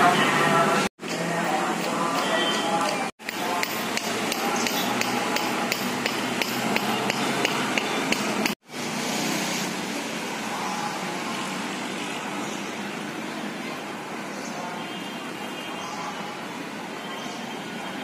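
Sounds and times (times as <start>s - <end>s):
steady background noise: 0.0s - 18.0s
rhythmic sharp knocking: 1.0s - 8.6s.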